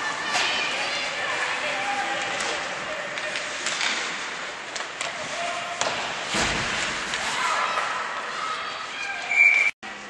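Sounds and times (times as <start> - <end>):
spectators' voices: 0.0 - 9.4
thud against rink boards: 3.5 - 8.0.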